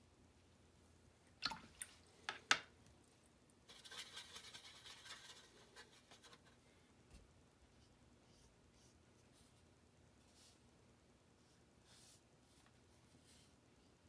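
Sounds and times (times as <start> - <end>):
brush scrubbing in wet paint: 3.7 - 6.5.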